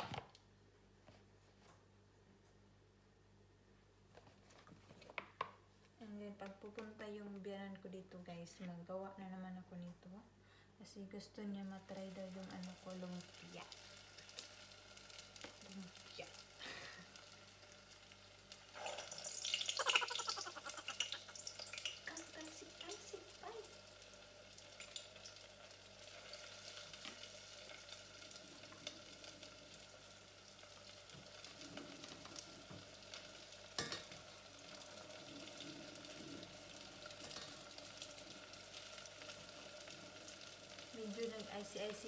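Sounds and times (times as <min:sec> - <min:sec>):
food sizzling in oil: 0:11.8 - 0:42.0.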